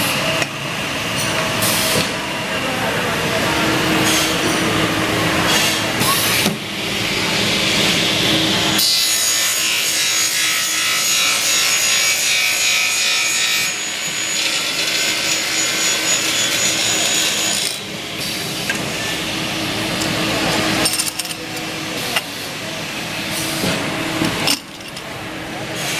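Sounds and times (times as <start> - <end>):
saw cutting aluminium: 7.4 - 18.0.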